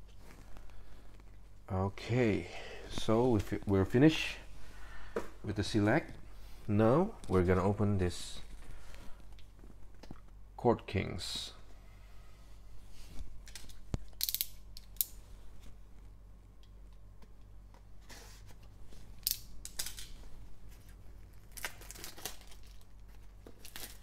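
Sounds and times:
plastic shrink wrap crinkling: 20.7s - 24.0s.

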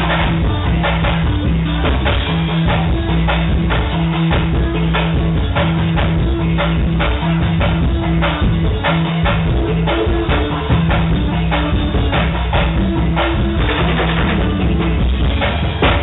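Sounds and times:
drum kit beat: 0.0s - 16.0s
live band music: 0.0s - 16.0s.

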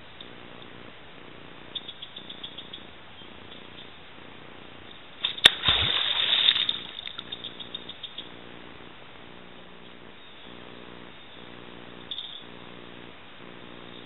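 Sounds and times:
tail slap on water: 5.2s - 7.2s
water splashing: 5.2s - 7.3s.

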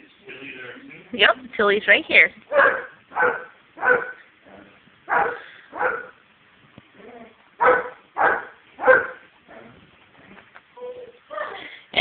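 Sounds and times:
dog barking: 2.5s - 4.2s, 5.1s - 6.2s, 7.6s - 9.3s.

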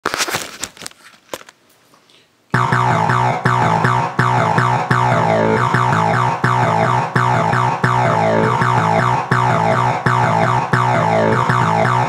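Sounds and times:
synthesizer keyboard music: 2.6s - 12.0s.

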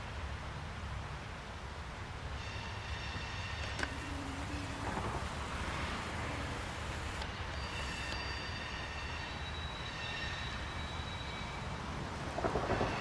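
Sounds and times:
diesel locomotives rumbling: 2.3s - 13.0s
faint high steady tones: 2.4s - 12.0s
wind on microphone: 3.8s - 8.0s.

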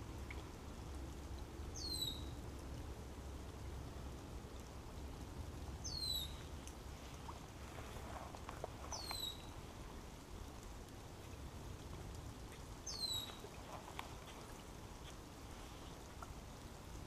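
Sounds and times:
rain pattering on water: 0.0s - 17.0s
soft drip ticks: 0.0s - 17.0s
bird squeaky call: 9.0s - 9.5s, 12.9s - 13.4s.

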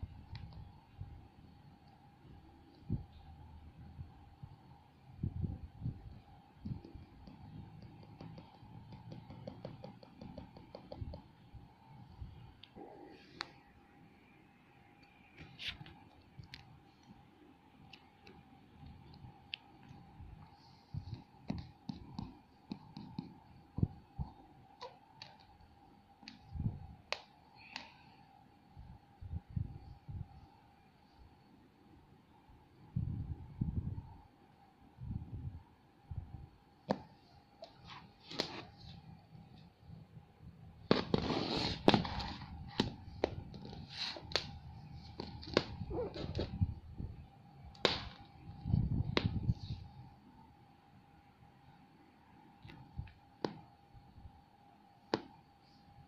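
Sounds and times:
faint steady hum: 0.0s - 56.0s
fingertip tapping touchscreen: 6.6s - 11.4s, 21.0s - 23.4s
tablet clicks and knocks: 6.7s - 11.3s.

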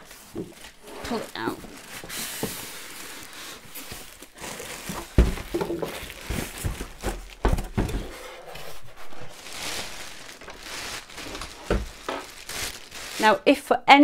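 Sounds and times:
plastic wrapping crinkling: 0.0s - 13.7s
polystyrene foam being handled: 0.0s - 13.8s
heavy thumps: 4.8s - 8.3s, 9.5s - 12.6s.

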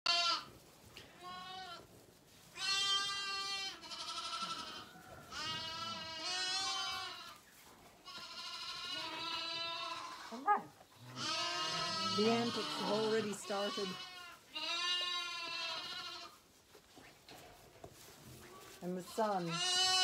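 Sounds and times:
lambs bleating: 0.1s - 0.5s, 1.2s - 1.9s, 2.6s - 7.4s, 8.0s - 16.4s, 19.0s - 20.0s.

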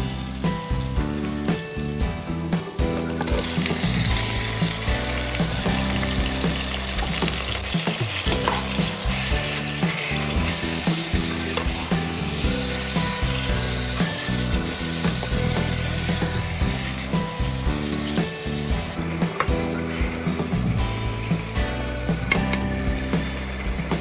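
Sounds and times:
background music with bass: 0.0s - 24.0s
meat sizzling in a frying pan: 0.0s - 24.0s
spatula scraping a pan: 7.2s - 20.8s.

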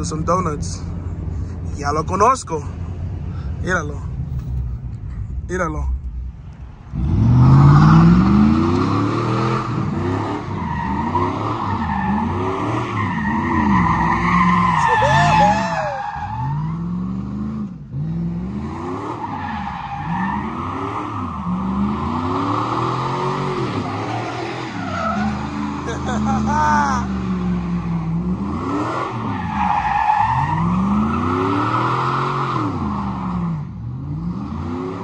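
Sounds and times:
truck engine revving: 6.0s - 35.0s
tires squealing on pavement: 7.0s - 17.5s, 18.5s - 33.6s.

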